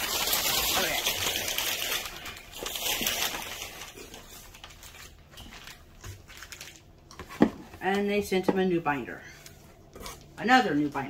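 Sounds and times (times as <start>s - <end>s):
paper rustling and crinkling: 0.0s - 8.1s.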